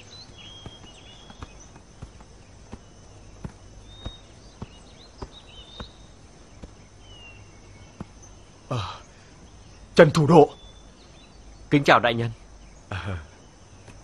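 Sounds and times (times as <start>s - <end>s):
footsteps on dirt path: 0.0s - 10.0s, 13.3s - 14.0s
faint bird chirps: 0.0s - 14.0s
insect drone: 0.0s - 14.0s.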